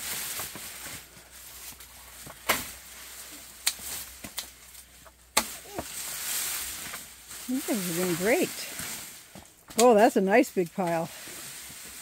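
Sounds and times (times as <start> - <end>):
vines rustling: 0.0 - 12.0.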